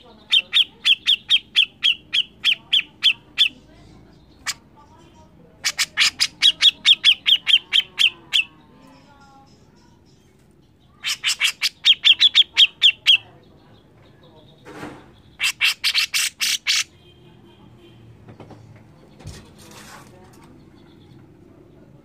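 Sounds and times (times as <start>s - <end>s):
bird harsh chattering calls: 0.0s - 4.9s, 5.6s - 10.0s, 10.7s - 14.0s, 15.0s - 17.0s.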